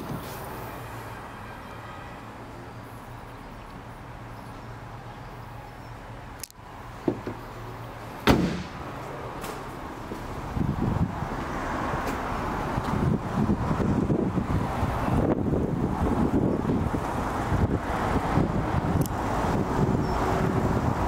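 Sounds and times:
car bonnet slamming shut: 8.2s - 8.8s.

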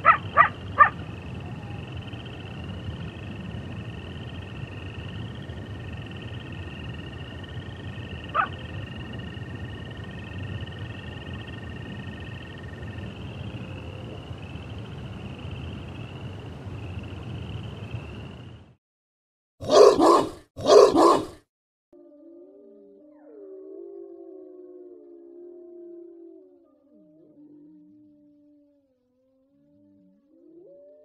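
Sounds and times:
high pulsing insect chorus: 0.0s - 18.7s.

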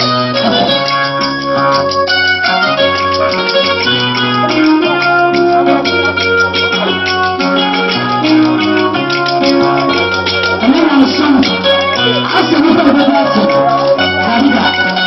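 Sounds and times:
bass line: 0.0s - 15.0s
keyboard notes: 0.0s - 15.0s
live band music: 0.0s - 15.0s
gourd shaker rattling: 5.9s - 15.0s.

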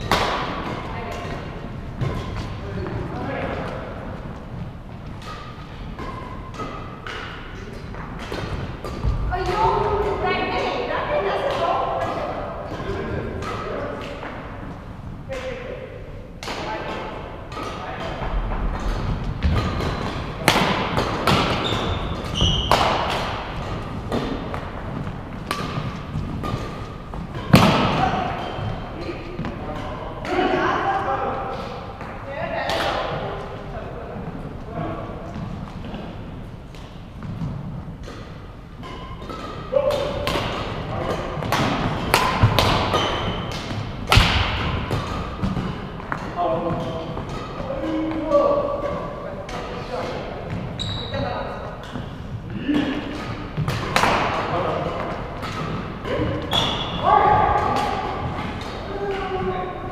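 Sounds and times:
high squeaks: 21.5s - 23.0s, 50.8s - 51.4s, 56.4s - 57.2s.

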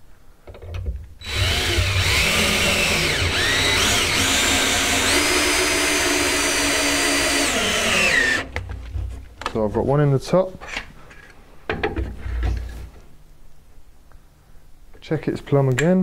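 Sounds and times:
drill-driver driving screw into wood: 1.2s - 8.5s.

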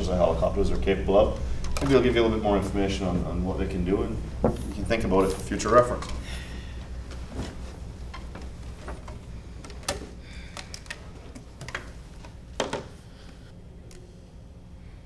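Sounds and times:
low room hum: 0.0s - 15.0s
clicks and knocks of handling: 5.3s - 6.2s, 7.1s - 13.0s.

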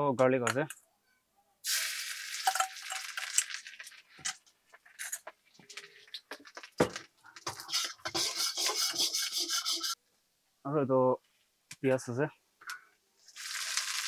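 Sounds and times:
garlic sizzling in hot oil: 1.7s - 3.6s, 13.3s - 14.0s
ladle scraping in a wok: 7.6s - 10.0s.

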